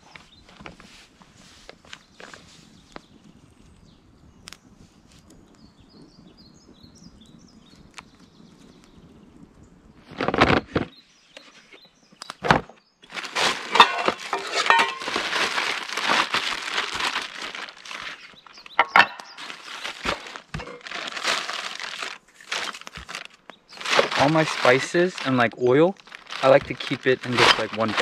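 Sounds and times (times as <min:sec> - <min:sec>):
bags rustling and crinkling: 0:12.5 - 0:28.0.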